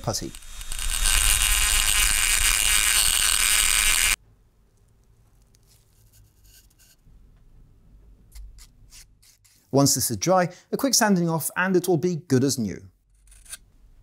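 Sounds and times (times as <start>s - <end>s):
rotary tool grinding: 0.0s - 4.2s, 13.1s - 13.6s.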